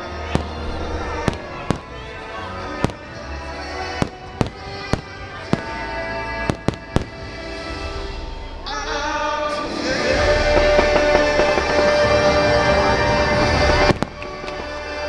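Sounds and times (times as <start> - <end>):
music playing: 0.0 - 15.0
firework bangs: 0.2 - 8.1, 10.0 - 15.0.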